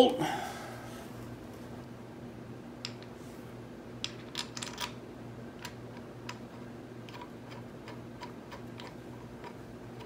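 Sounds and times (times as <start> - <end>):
steady low hum: 0.0 - 10.0
metallic clicks of bolt threading: 7.0 - 10.0.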